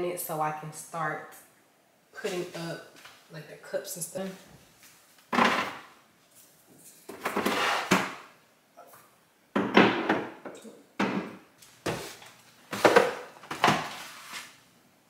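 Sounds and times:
cans and jars clunking on shelves: 9.6 - 12.1.

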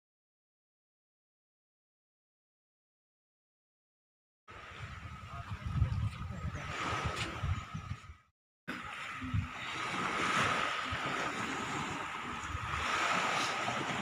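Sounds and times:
waves washing on shore: 4.5 - 7.6, 8.7 - 14.0
wind on microphone: 4.5 - 14.0.

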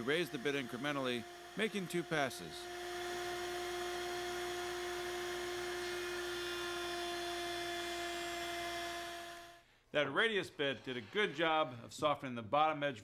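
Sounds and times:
router whining through wood: 0.0 - 9.6.

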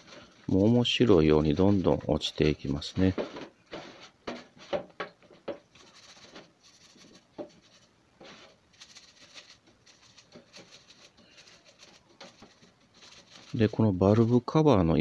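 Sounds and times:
brush scrubbing wet swishes: 5.8 - 14.6.

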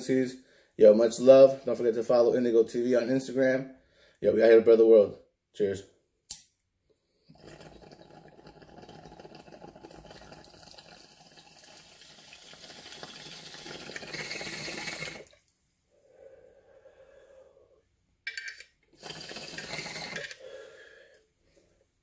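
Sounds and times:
water bubbling in glass pipe: 7.3 - 15.4, 19.0 - 20.4.

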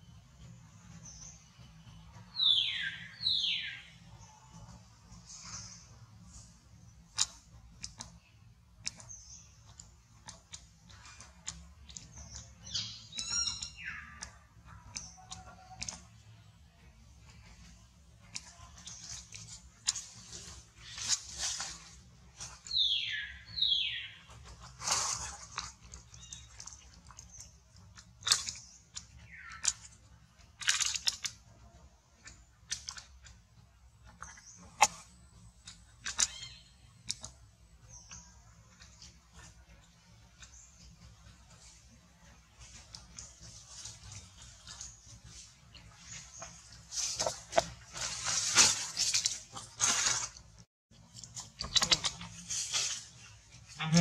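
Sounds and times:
crackles and clicks in leaf litter: 0.0 - 54.0
dry leaves crackling and snapping: 18.2 - 23.0, 23.6 - 30.0, 42.6 - 50.6, 51.3 - 53.4.

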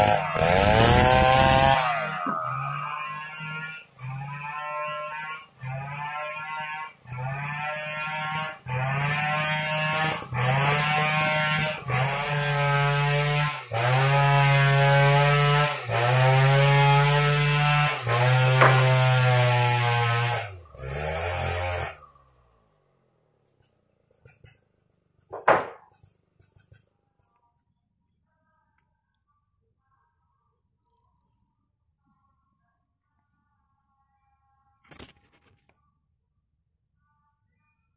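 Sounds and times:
chainsaw engine running hard: 0.0 - 22.1.

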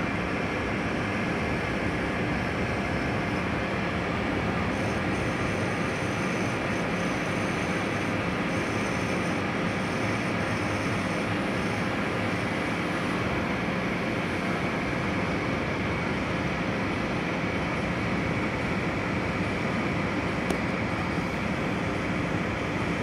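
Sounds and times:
metal lathe cutting: 4.6 - 13.6.

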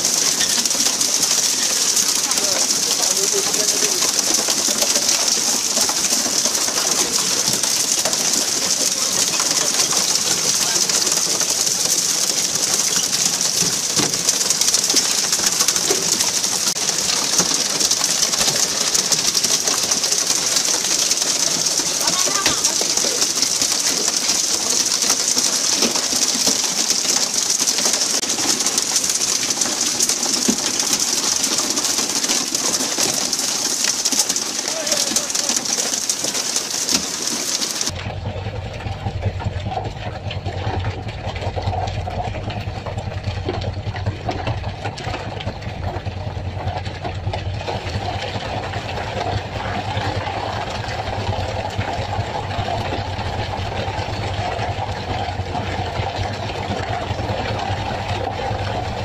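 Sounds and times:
water sprinklers hissing spray: 0.0 - 37.9
splashing: 0.0 - 59.0.

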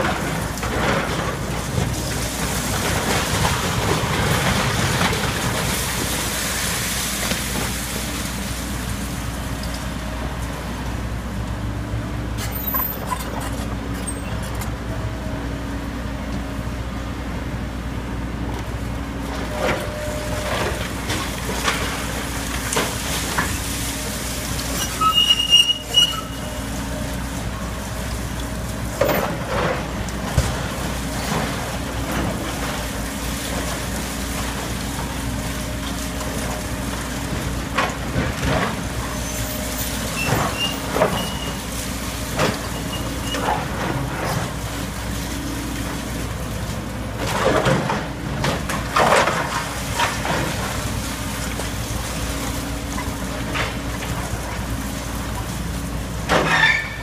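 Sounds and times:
debris crashing and clanking: 0.0 - 8.0, 47.2 - 51.7, 56.2 - 57.0
excavator diesel engine running: 0.0 - 57.0.

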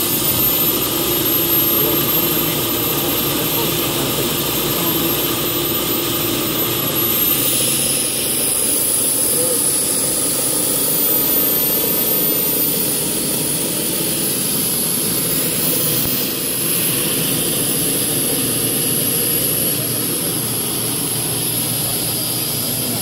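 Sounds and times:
carpet extractor vacuum motor: 0.0 - 23.0.

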